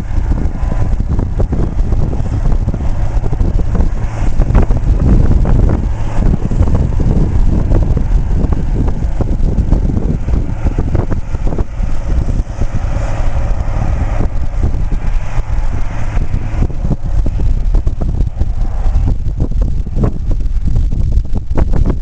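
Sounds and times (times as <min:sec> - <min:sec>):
sprayer engine passing: 0:00.0 - 0:20.9
wind buffeting microphone: 0:00.0 - 0:22.0.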